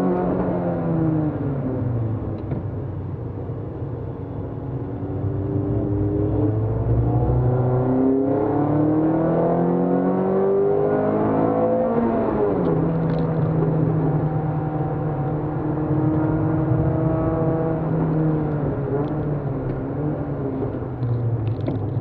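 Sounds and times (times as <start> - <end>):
car engine accelerating: 4.9 - 22.0.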